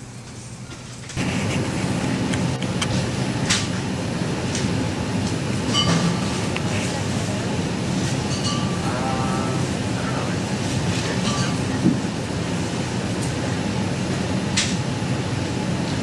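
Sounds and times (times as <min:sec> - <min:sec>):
faint voices: 0:08.6 - 0:11.8.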